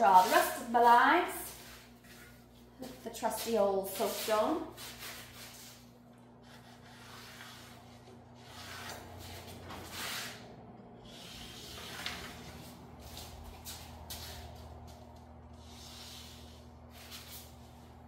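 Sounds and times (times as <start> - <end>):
steady low hum: 0.0 - 18.0
marker scratching on steel plate: 6.4 - 10.4.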